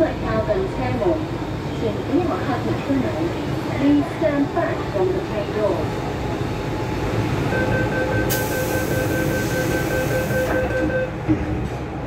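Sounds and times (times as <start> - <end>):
rapid door warning beeping: 7.5 - 11.2
train doors shutting thump: 9.7 - 11.8.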